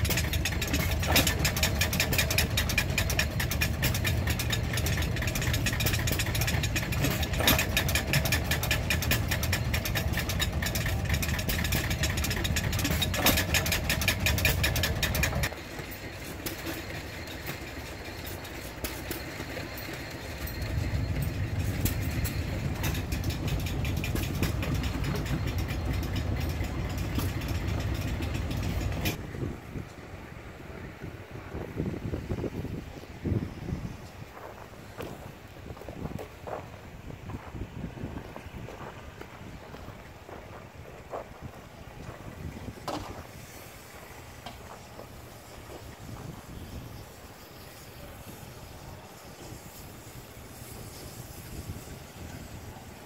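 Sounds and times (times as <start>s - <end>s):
stationary gas engine fast beat: 0.0s - 15.8s, 16.6s - 29.2s
quieter small engine running: 0.0s - 29.2s.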